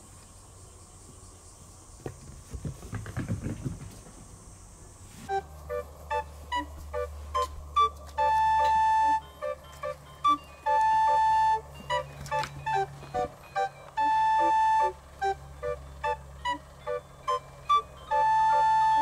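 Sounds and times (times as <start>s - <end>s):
light plinking tune: 5.3s - 19.0s.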